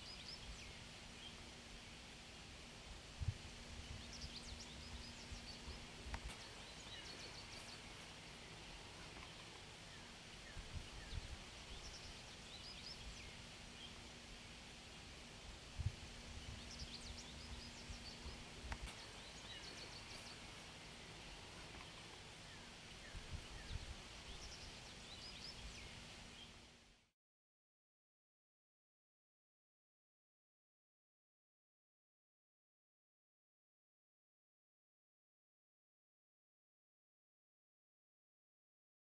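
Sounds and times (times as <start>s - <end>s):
small birds chirping: 0.0s - 2.6s, 3.2s - 26.8s
steady hiss: 0.0s - 27.1s.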